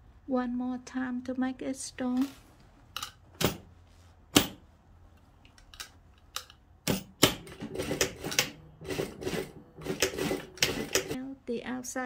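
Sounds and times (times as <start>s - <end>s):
sewing machine clicks: 6.4s - 11.2s
sewing machine stitching clatter: 7.2s - 11.2s.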